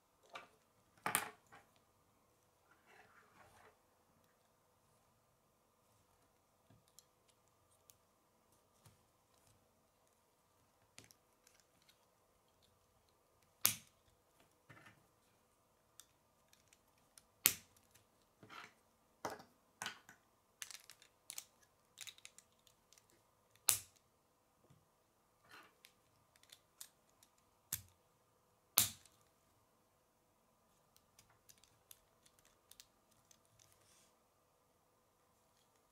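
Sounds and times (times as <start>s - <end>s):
plastic pieces clicking and snapping: 20.6s - 24.0s, 30.9s - 33.8s.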